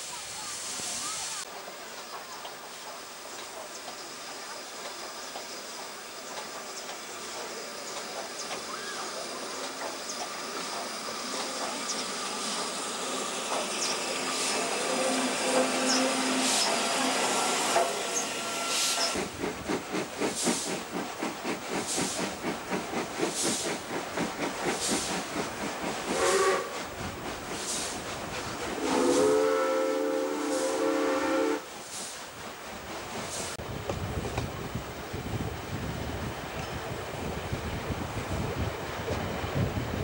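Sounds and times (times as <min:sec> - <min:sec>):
rushing hiss of a train: 0:00.0 - 0:40.0
steam locomotive chuffing: 0:00.7 - 0:33.6
steam whistle: 0:14.4 - 0:19.2, 0:26.1 - 0:26.8, 0:28.8 - 0:31.7.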